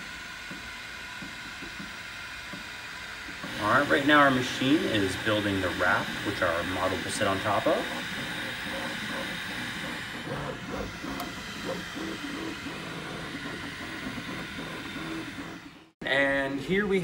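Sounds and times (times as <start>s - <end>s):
fan hiss: 0.0s - 7.6s
printer stepper motors whirring: 0.0s - 17.0s.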